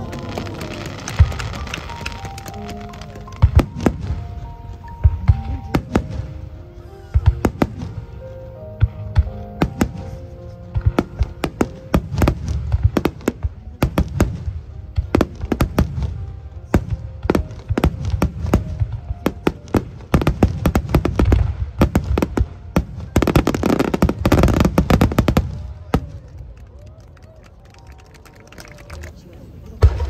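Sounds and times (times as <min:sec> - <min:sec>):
crackling firework bursts: 0:00.0 - 0:04.5
fireworks bangs: 0:00.0 - 0:26.9, 0:29.5 - 0:30.0.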